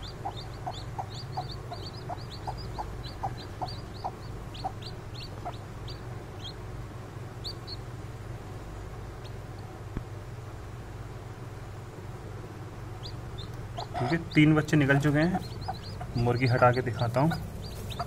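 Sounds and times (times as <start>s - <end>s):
chicks peeping: 0.0s - 6.6s, 7.4s - 7.9s, 12.9s - 18.0s
steady low hum: 0.0s - 18.0s.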